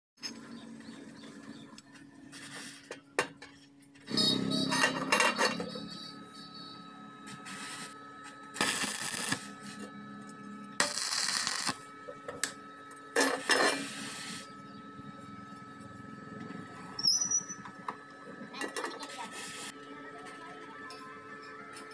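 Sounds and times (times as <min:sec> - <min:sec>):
steady welder hum: 0:00.3 - 0:21.9
welding arc crackling: 0:04.1 - 0:16.4, 0:19.0 - 0:19.7.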